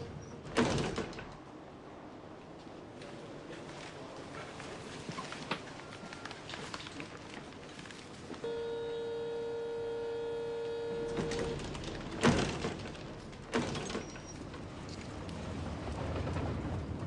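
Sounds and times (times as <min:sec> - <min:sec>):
car door warning buzzer: 0:08.4 - 0:11.9
car doors shutting: 0:10.6 - 0:14.5.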